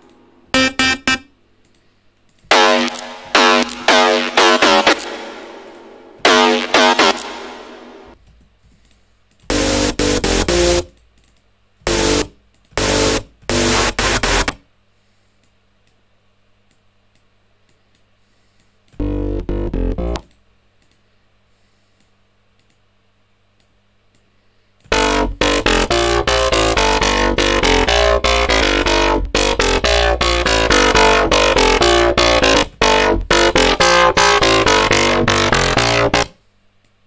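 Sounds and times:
faint hum: 0.0s - 37.0s
deep buzzy synth bass: 0.6s - 1.3s, 2.5s - 8.2s, 9.5s - 10.9s, 11.8s - 14.6s, 19.0s - 20.3s, 24.9s - 36.4s.

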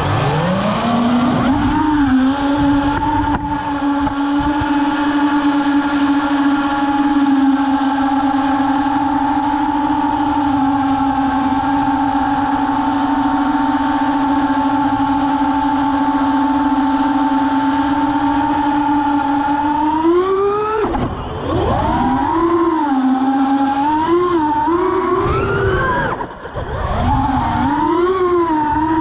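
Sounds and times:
quadcopter motor whine: 0.0s - 29.0s.

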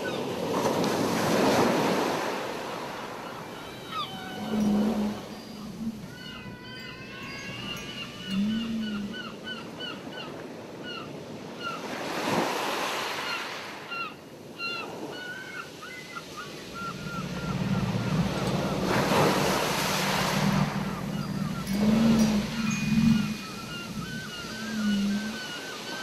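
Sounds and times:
ocean surf washing ashore: 0.0s - 26.0s
whale song moaning: 3.2s - 9.8s, 16.4s - 26.0s
gull calling: 3.2s - 11.8s, 13.3s - 26.0s.

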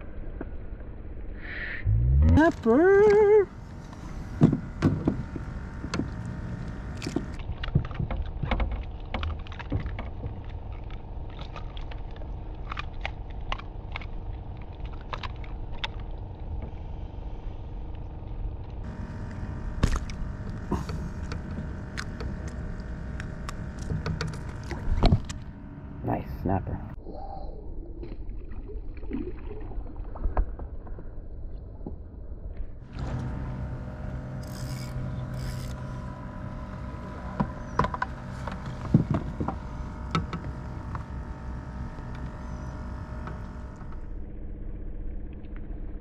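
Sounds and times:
faint hum: 0.0s - 46.0s
low rumble: 0.0s - 46.0s.

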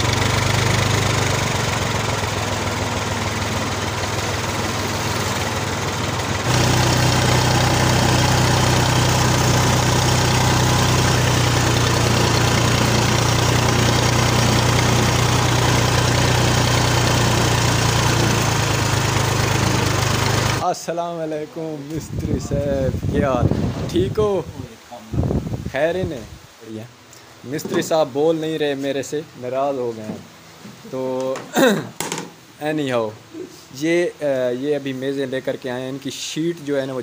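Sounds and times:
diesel tractor engine running: 0.0s - 20.6s.

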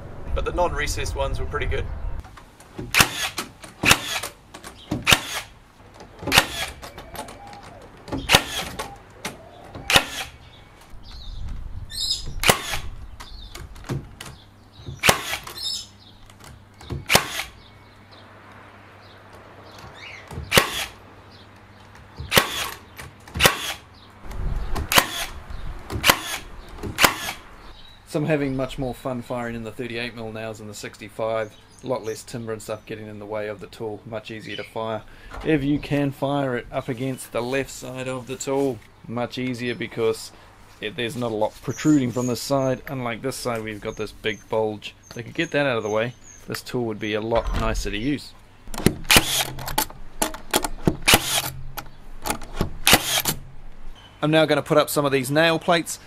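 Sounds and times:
nail gun firing into timber: 2.8s - 5.5s, 6.2s - 6.8s, 9.9s - 10.3s, 12.4s - 12.9s, 15.0s - 15.6s, 17.1s - 17.6s, 20.5s - 21.0s, 22.3s - 23.8s, 24.8s - 25.3s, 25.9s - 27.4s, 48.7s - 49.9s, 50.5s - 51.6s, 52.3s - 53.4s.

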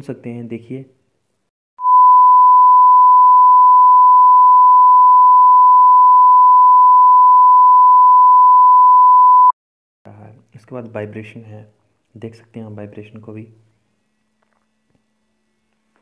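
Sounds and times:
steady single-pitched test beep: 1.8s - 9.5s.

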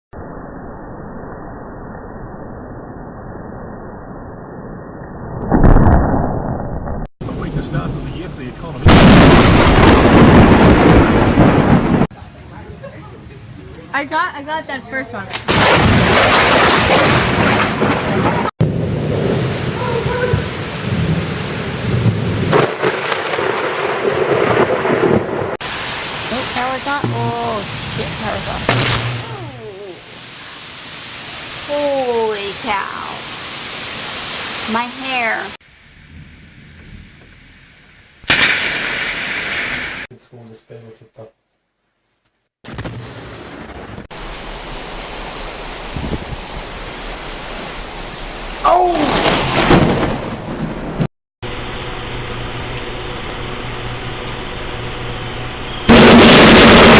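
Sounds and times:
thunder rumbling: 5.2s - 12.1s, 15.4s - 33.4s, 34.6s - 40.1s, 42.7s - 56.9s
thunder crack: 5.4s - 12.1s, 15.4s - 29.6s, 38.2s - 40.1s, 42.6s - 51.1s, 55.9s - 56.9s
heavy rain: 7.2s - 14.3s, 15.4s - 37.6s, 42.7s - 54.0s, 55.9s - 56.9s.

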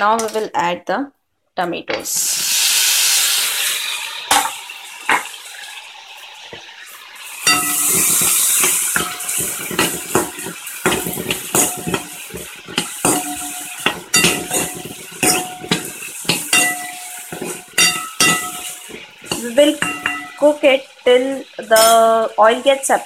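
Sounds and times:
loud hiss: 2.1s - 5.2s, 7.2s - 20.3s
metal spoon clinking in pan: 7.4s - 20.5s, 21.6s - 22.2s.

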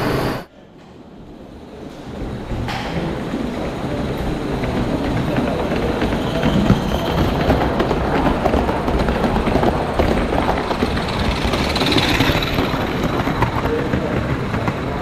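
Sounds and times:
steam hissing: 0.0s - 0.5s, 10.0s - 13.6s
model locomotive wheels clicking: 4.0s - 15.0s.

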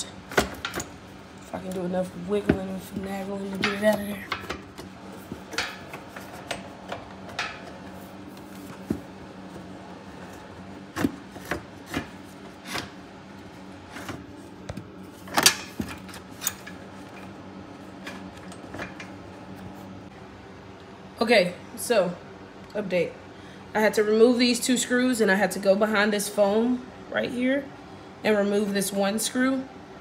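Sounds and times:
steady low hum: 0.0s - 30.0s
tools clicking and knocking on metal: 0.3s - 1.8s, 2.4s - 7.8s.

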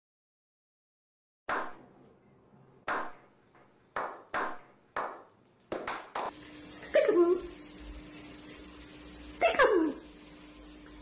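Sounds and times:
hands clapping: 1.5s - 1.8s, 2.9s - 6.3s
steady hum with faint high tone: 6.3s - 11.0s.

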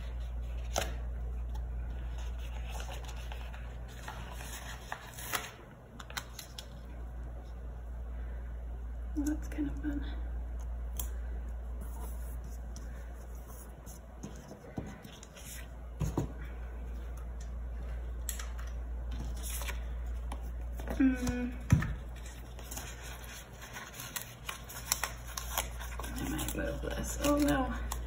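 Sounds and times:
paper rustling: 0.0s - 6.8s, 22.0s - 27.9s
stickers peeling: 18.3s - 28.0s
person humming: 20.9s - 21.7s.

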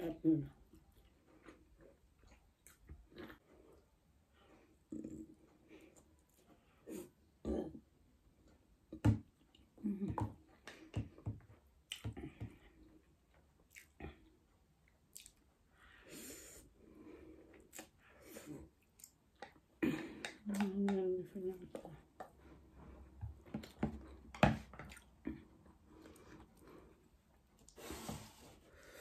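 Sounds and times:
chewing: 0.7s - 3.9s, 11.9s - 15.5s
wet mouth smacks and clicks: 15.1s - 15.4s.

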